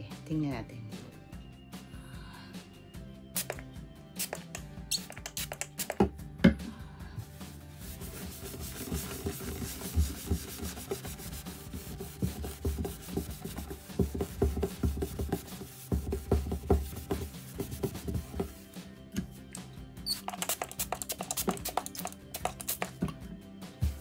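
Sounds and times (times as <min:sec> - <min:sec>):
cloth rubbing on wooden table: 0:07.8 - 0:18.8
hand knocking on wood: 0:12.2 - 0:18.5.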